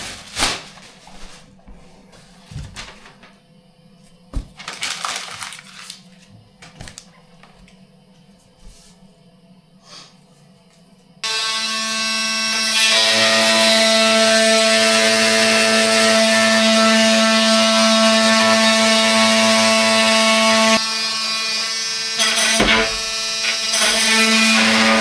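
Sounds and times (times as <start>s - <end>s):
power tool whining hum: 11.2s - 25.0s.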